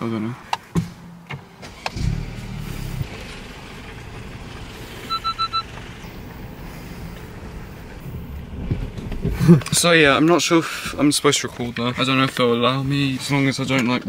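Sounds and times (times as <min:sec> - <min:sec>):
car engine starting and running: 0:00.9 - 0:12.1
car electronic chime beeps: 0:05.0 - 0:05.8.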